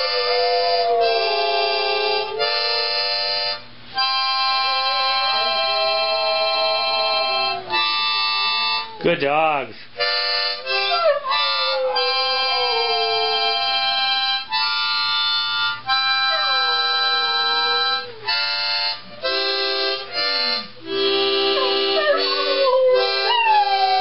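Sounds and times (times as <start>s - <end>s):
dog howling: 0.0s - 3.0s, 4.4s - 9.1s, 10.6s - 14.1s, 16.2s - 18.4s, 21.4s - 24.0s
harmonica playing chords: 0.0s - 9.1s, 9.8s - 24.0s.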